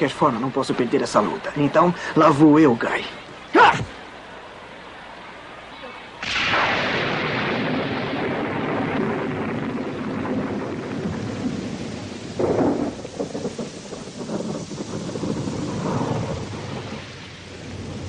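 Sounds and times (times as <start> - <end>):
steady rushing hiss: 0.0 - 18.0
thunder rumbling: 6.2 - 18.0
thunderclap: 6.2 - 18.0.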